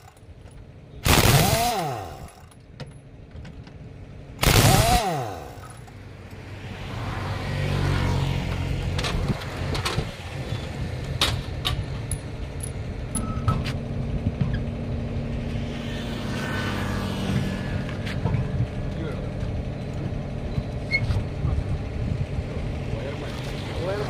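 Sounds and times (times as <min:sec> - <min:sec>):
pneumatic impact wrench blasts: 0:01.0 - 0:02.5, 0:04.4 - 0:06.0
low hum: 0:08.7 - 0:23.8.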